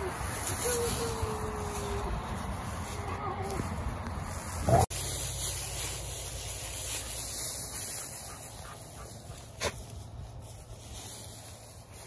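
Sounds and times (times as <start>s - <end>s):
dogs sniffing through hay: 0.0s - 12.0s.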